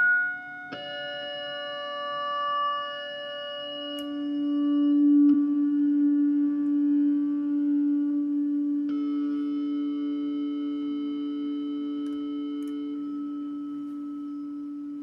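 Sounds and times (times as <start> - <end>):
higher feedback tone: 0.0 - 0.7
guitar feedback drone: 0.0 - 15.0.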